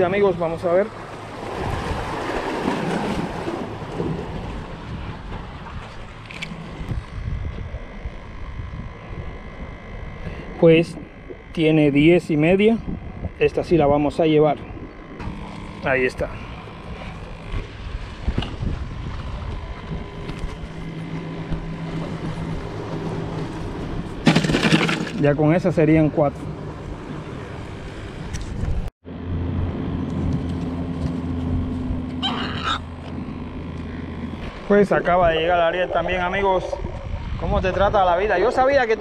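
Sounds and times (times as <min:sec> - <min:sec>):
steady low hum: 0:00.0 - 0:39.0
surf washing against rocks: 0:00.9 - 0:06.0
wind buffeting microphone: 0:00.9 - 0:24.2, 0:33.2 - 0:39.0.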